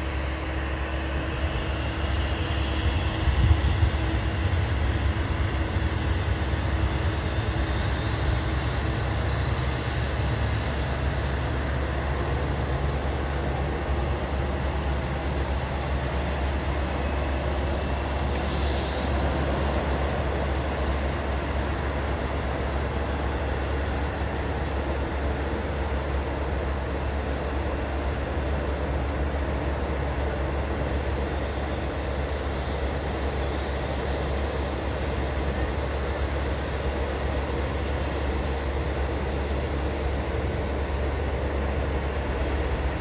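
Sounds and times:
airliner low rumble and hiss: 0.0s - 43.0s.

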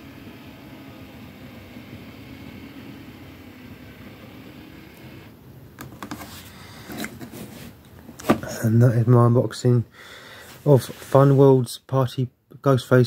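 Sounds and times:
projector whirring hum: 0.0s - 9.9s.

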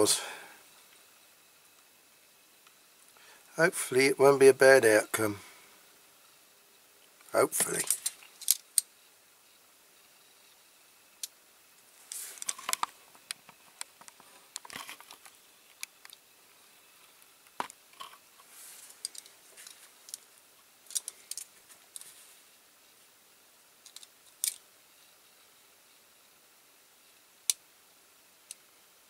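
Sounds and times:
small clicks and crackles: 7.0s - 8.9s, 11.2s - 16.2s, 16.9s - 22.3s, 23.8s - 24.6s.

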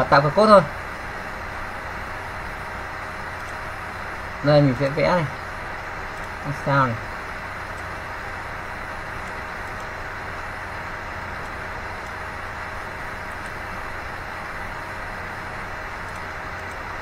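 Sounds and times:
faint hum: 0.0s - 17.0s
faint ticks: 9.2s - 10.5s, 16.0s - 16.8s.

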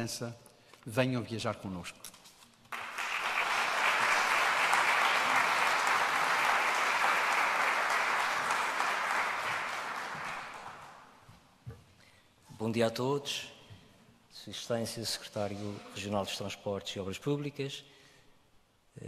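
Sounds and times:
audience applauding: 2.7s - 11.2s.

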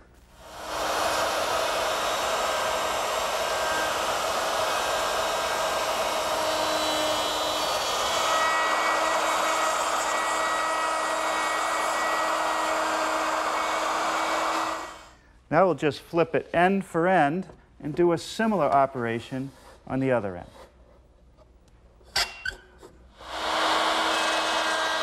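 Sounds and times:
router cutting wood: 0.4s - 15.1s, 23.2s - 25.0s.

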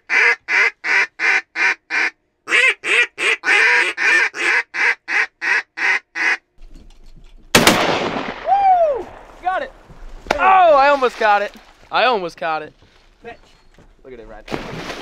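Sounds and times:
duck call quacks: 0.0s - 6.5s.

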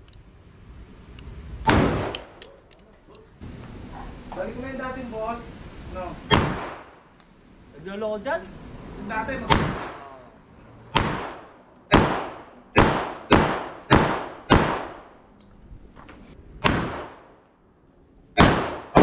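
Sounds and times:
pistol gunshots with echo: 6.3s - 7.0s, 9.5s - 10.1s, 10.9s - 15.1s, 18.4s - 19.0s.

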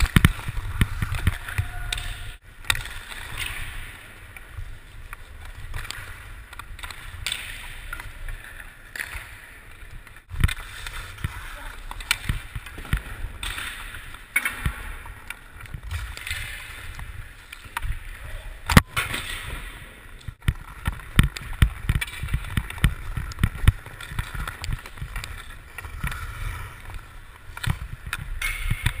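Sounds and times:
sharp crack: 0.0s - 4.1s, 18.6s - 29.0s
stick tapping puck: 0.0s - 18.0s, 20.3s - 29.0s
skates scraping on ice: 0.0s - 29.0s.

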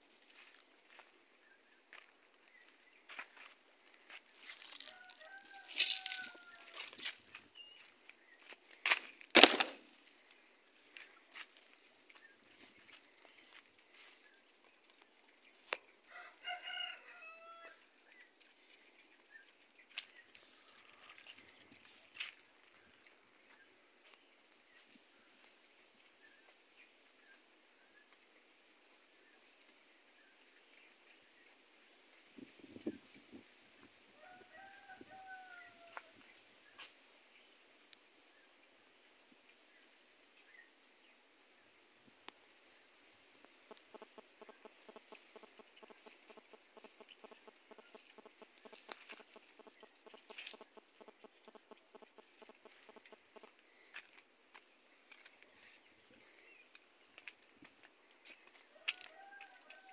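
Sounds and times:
faint rooster crowing: 4.6s - 7.2s, 16.1s - 17.9s, 20.3s - 21.4s, 34.1s - 36.3s, 43.7s - 52.5s, 58.2s - 59.9s
rooster crowing: 4.8s - 7.0s, 16.1s - 17.8s, 34.2s - 36.1s, 58.7s - 59.9s
sharp clicks: 43.4s - 53.5s.

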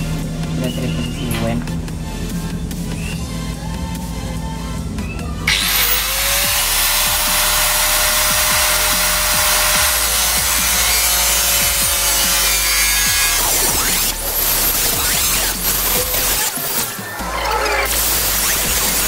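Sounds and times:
angle grinder whine: 5.5s - 19.0s
grinder cutting sheet metal: 5.5s - 19.0s.

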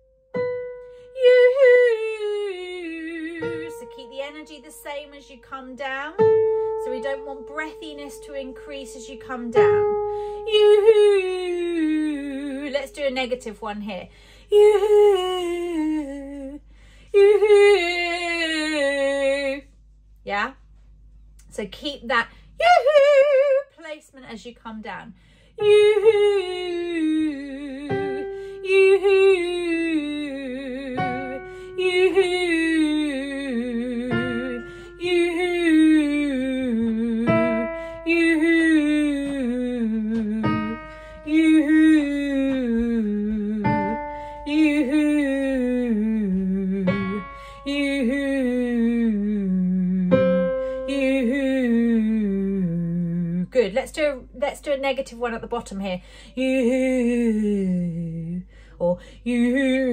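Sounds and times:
woman singing sliding vocal: 1.1s - 13.4s, 14.5s - 19.7s, 22.6s - 23.8s, 25.6s - 54.1s, 56.4s - 59.9s.

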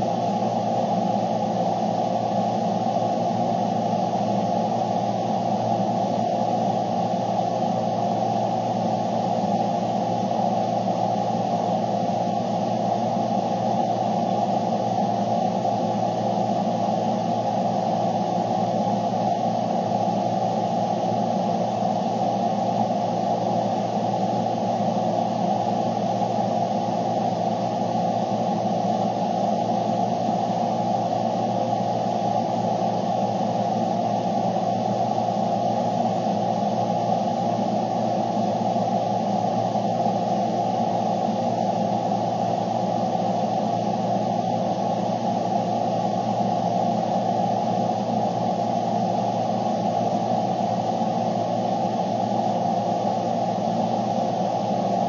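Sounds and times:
steady static noise with hum: 0.0s - 55.0s.

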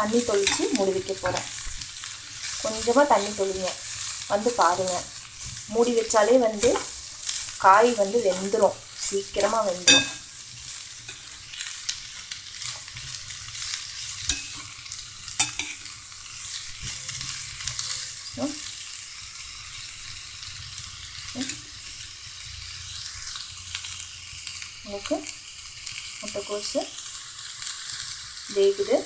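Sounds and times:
cabbage sizzling in a pan: 0.0s - 29.0s
metal spoon scraping a pan: 0.1s - 1.7s, 2.3s - 11.6s, 12.5s - 18.8s, 20.5s - 21.9s.

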